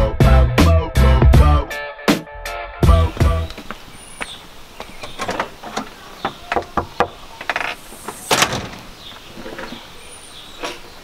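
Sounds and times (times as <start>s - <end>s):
irregular knocks and clicks: 3.5s - 9.8s.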